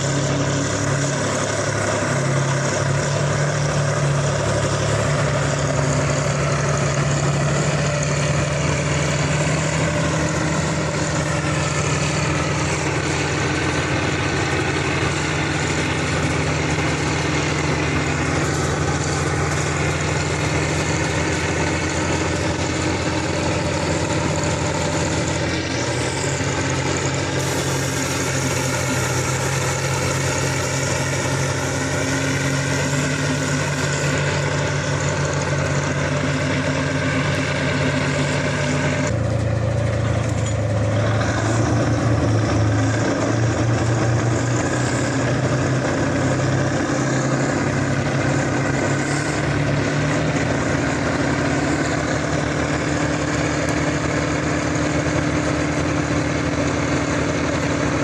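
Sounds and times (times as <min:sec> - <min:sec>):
heavy diesel tractor engines running: 0:00.0 - 0:58.0.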